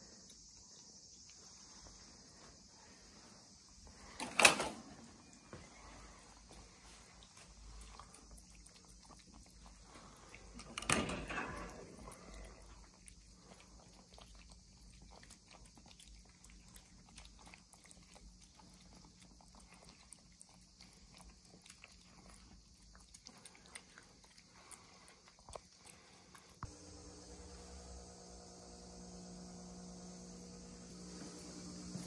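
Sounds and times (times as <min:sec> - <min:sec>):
kittens chewing food: 0:00.0 - 0:32.0
steady hum: 0:26.0 - 0:32.0.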